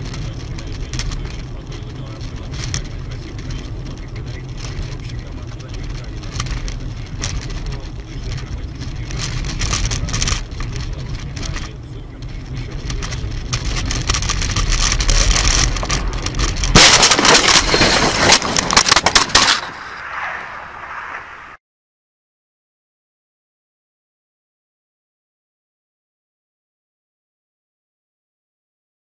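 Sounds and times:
car road and engine rumble: 0.0s - 21.6s
car crash crunching impacts: 12.6s - 20.2s.

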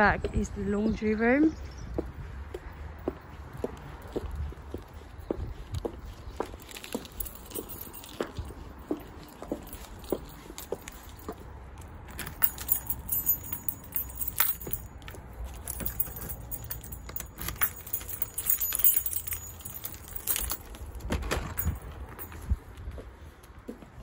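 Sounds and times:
keys jangling: 6.2s - 22.7s
door lock clicks and rattles: 15.6s - 22.4s.

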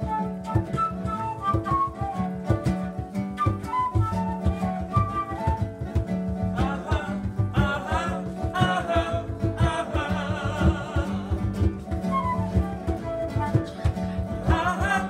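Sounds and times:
flute phrase: 0.0s - 7.0s, 11.5s - 15.0s
hand drum beat: 0.0s - 15.0s
strummed acoustic guitar: 0.0s - 15.0s
man singing: 6.4s - 13.0s, 13.8s - 15.0s.

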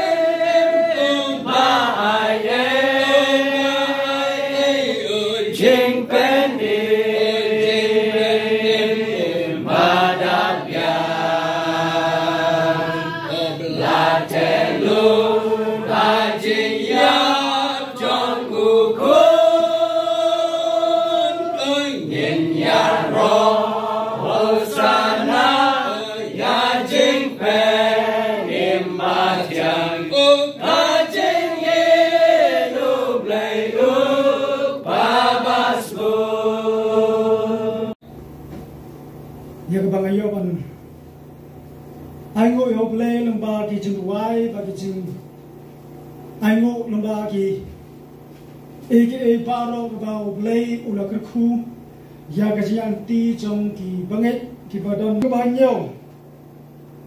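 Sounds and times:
congregation singing a hymn: 0.0s - 38.0s.

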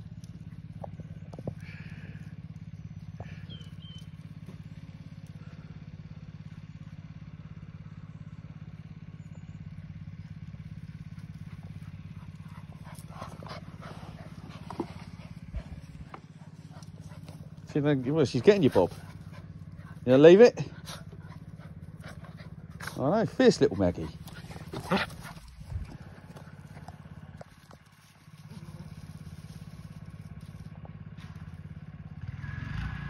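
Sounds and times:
dogs play-fighting: 0.0s - 4.8s, 10.4s - 30.6s
low engine hum: 0.0s - 33.0s.

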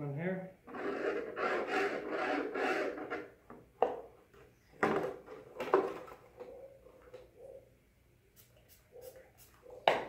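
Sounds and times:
scraping on plastic helmet: 0.7s - 3.3s.

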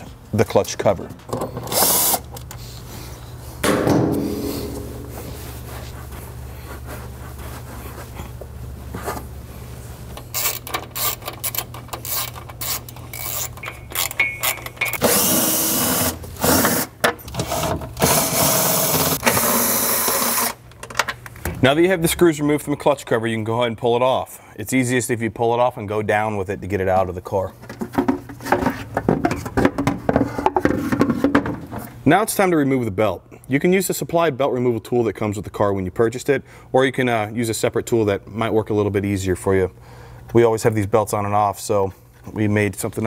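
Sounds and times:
screws and cover rattling: 10.1s - 21.1s
cordless power driver running: 15.0s - 20.6s.

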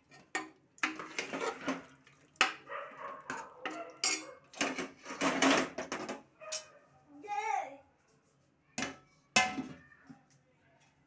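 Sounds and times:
ladle scraping a metal pot: 0.0s - 2.5s, 3.3s - 6.7s.

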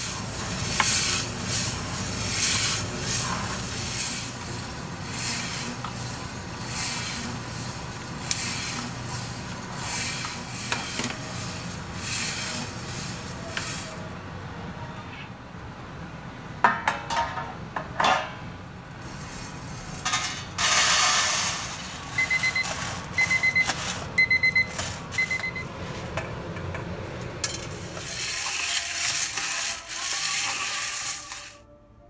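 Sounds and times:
beans rustling in steel pot: 0.0s - 14.1s, 19.0s - 26.0s, 27.4s - 31.6s
coffee beans pouring into steel tray: 0.0s - 14.1s, 19.0s - 24.0s, 27.4s - 31.6s
electronic beeps: 22.2s - 25.6s.

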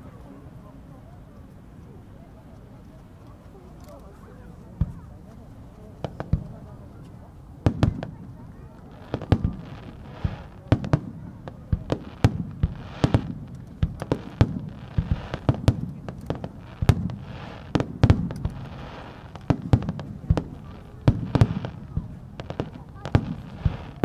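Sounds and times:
firework shells booming: 9.1s - 24.0s.

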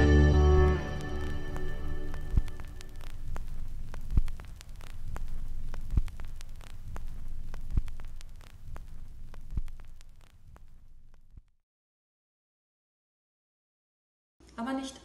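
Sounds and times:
low rumbling hum: 0.0s - 11.5s.

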